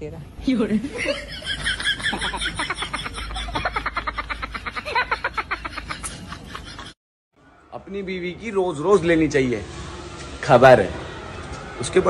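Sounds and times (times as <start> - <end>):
man laughing hard: 1.0 - 7.0.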